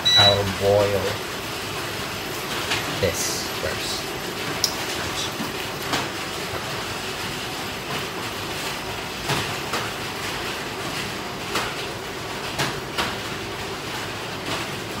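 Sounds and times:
heavy rain hissing: 0:00.0 - 0:07.6.

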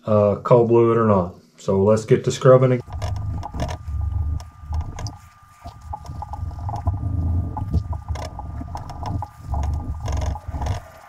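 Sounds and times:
small clicks and knocks: 0:02.8 - 0:11.0
steel wool scrubbing metal: 0:02.8 - 0:11.0.

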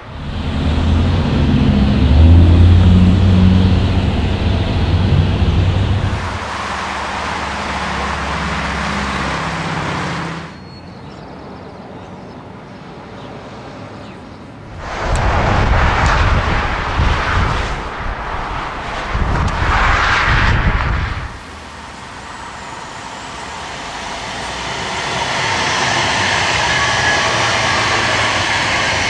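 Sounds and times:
loud engine with deep tones: 0:00.0 - 0:10.6, 0:20.6 - 0:29.0
quiet traffic: 0:00.0 - 0:27.4
road and engine noise: 0:00.0 - 0:29.0.

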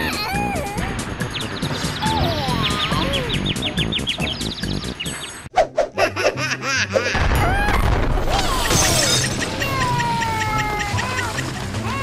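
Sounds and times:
background music: 0:00.0 - 0:12.0
explosion boom and rumble: 0:07.2 - 0:10.1
glass breaking: 0:08.3 - 0:09.5.

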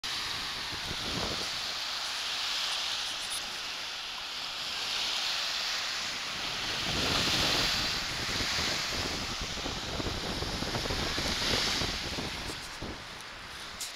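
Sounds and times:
small waves breaking on shore: 0:00.0 - 0:13.9
wind buffeting microphone: 0:00.1 - 0:01.7, 0:06.0 - 0:13.9.

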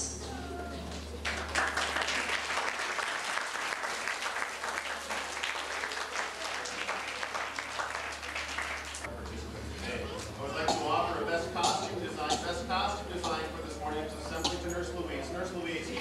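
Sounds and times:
audience applauding: 0:01.2 - 0:09.1
hands clapping close by: 0:01.2 - 0:09.1.

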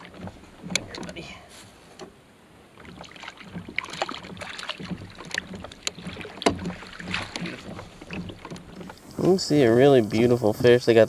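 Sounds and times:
fish splashing at the surface: 0:02.8 - 0:09.5.

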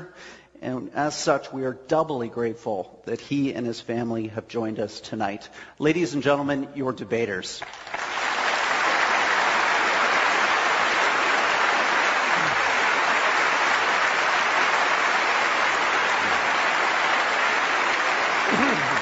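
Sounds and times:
large audience applauding: 0:07.6 - 0:19.0.

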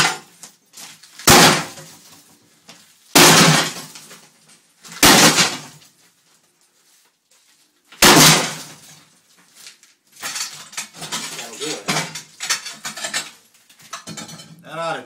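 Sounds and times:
broken pieces clattering: 0:03.2 - 0:06.0, 0:08.0 - 0:14.6.

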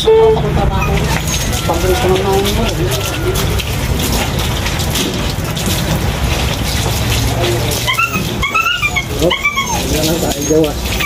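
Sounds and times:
husky whining: 0:00.7 - 0:04.4, 0:07.7 - 0:11.0.

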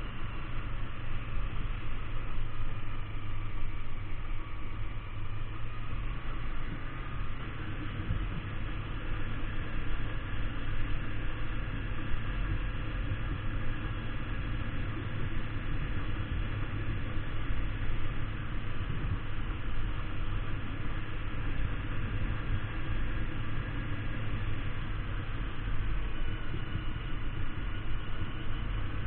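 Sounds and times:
motorcycle engine running: 0:00.0 - 0:29.0
wind noise on microphone: 0:06.7 - 0:08.8, 0:17.8 - 0:19.9.

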